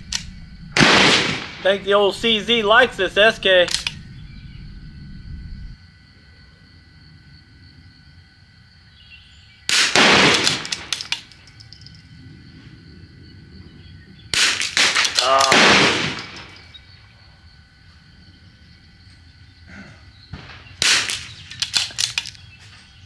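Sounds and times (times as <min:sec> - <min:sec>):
rifle shots with echo: 0:00.1 - 0:02.0, 0:09.7 - 0:11.1, 0:14.3 - 0:16.6, 0:20.4 - 0:22.2.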